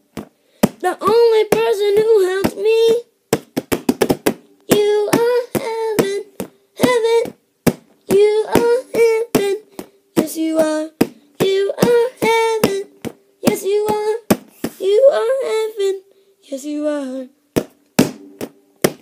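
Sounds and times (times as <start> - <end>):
child singing high wordless notes: 0.8 - 3.1, 4.6 - 7.4, 8.0 - 17.4.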